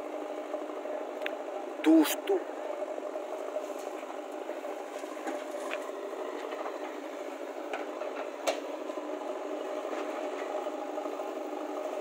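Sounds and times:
diesel engines running: 0.0 - 12.0.

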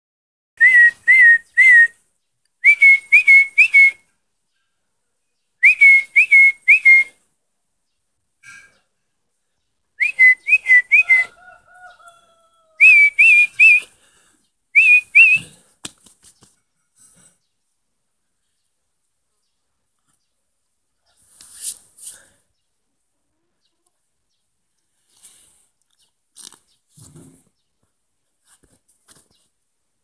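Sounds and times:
person whistling sharp pips: 0.6 - 2.0, 2.6 - 4.0, 5.6 - 7.2, 10.0 - 11.3, 12.8 - 13.9, 14.8 - 15.6.

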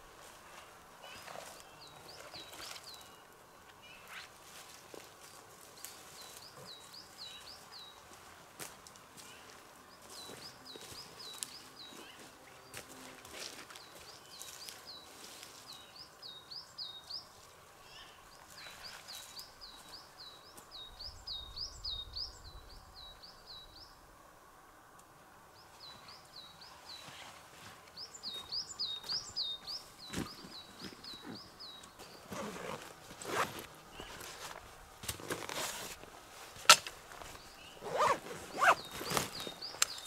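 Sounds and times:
footsteps on forest floor: 4.3 - 15.9, 26.9 - 40.0.

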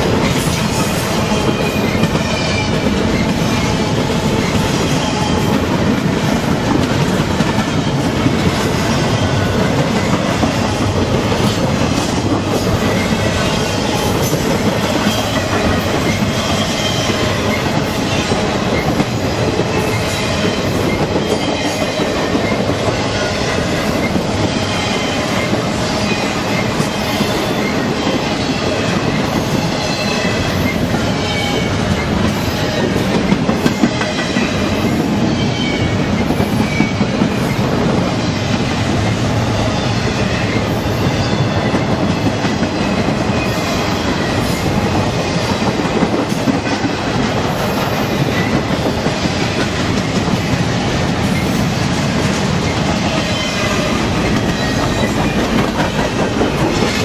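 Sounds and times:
freight train rumbling past: 0.0 - 57.0
wheels clacking over rails: 41.3 - 57.0.

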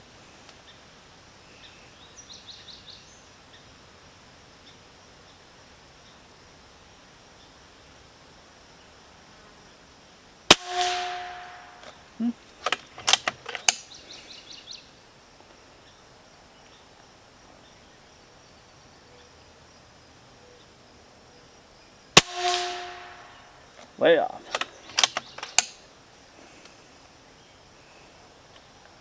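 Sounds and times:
air rifle shots: 10.5 - 12.0, 22.2 - 23.5
mechanical clicks of rifle action: 12.6 - 13.9, 24.5 - 25.8.

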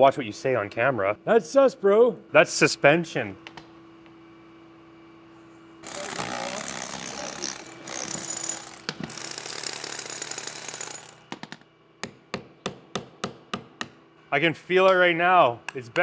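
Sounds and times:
hand hammer blows on chisel: 5.8 - 11.1
power tool hammering on steel: 5.8 - 14.0.

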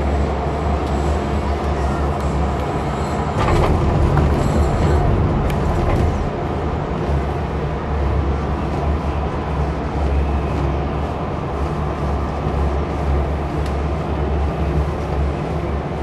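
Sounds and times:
gondola cabin rumble: 0.0 - 16.0
light clicks and rattles: 2.2 - 6.8
wind noise: 2.4 - 16.0.

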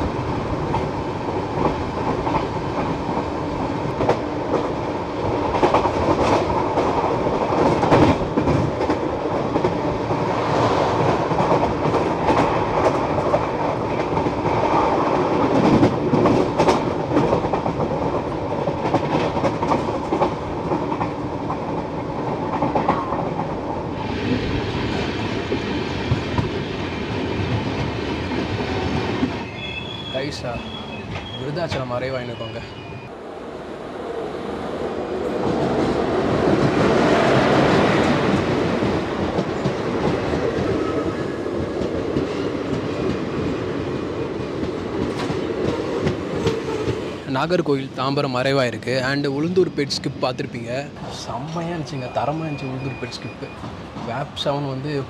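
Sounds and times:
train wheels clattering on rails: 0.0 - 32.1, 35.3 - 54.5.

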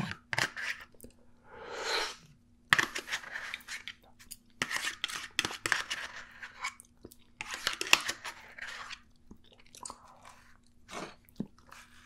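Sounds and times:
fork scraping plastic tray: 4.6 - 6.8.

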